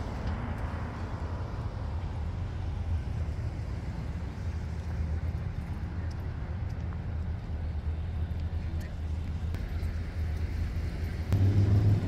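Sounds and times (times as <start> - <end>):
low street rumble: 0.0 - 12.0
faint light ticks: 5.6 - 7.1.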